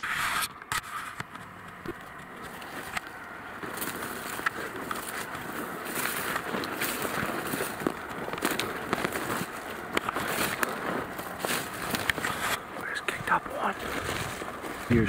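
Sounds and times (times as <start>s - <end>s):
footsteps crunching dry leaves: 0.9s - 15.0s
brush scraping past: 3.7s - 12.7s.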